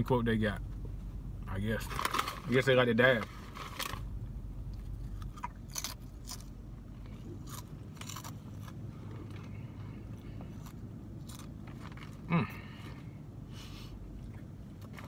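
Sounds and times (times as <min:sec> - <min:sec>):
crunchy chips being chewed: 0:04.9 - 0:09.5, 0:10.4 - 0:12.3.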